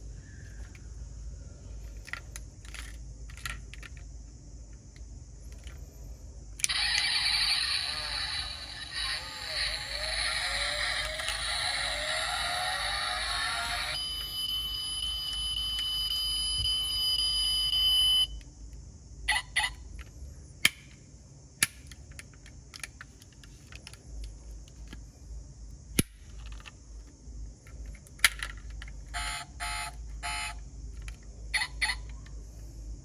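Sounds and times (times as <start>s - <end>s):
toy car doors clicking: 6.6s - 14.0s.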